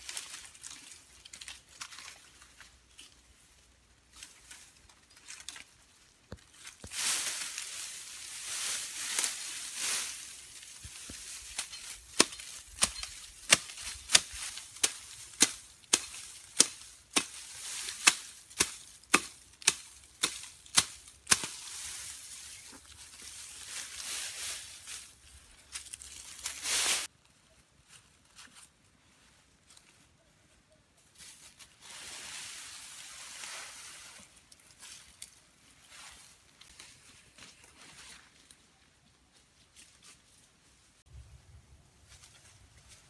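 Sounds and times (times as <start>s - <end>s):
tall grass rustling: 0.0s - 27.1s, 31.0s - 43.0s
grass stems snapping as cut: 11.6s - 21.6s.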